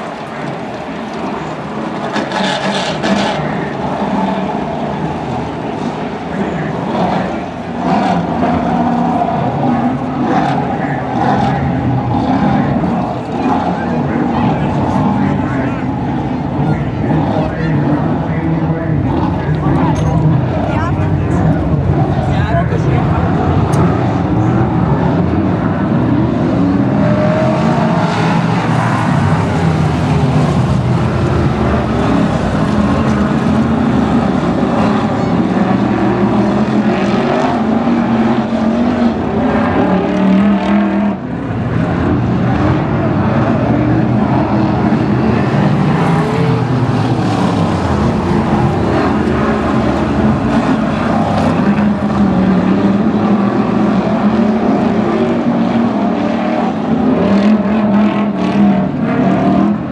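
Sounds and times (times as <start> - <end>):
race car engines running: 0.0 - 59.9.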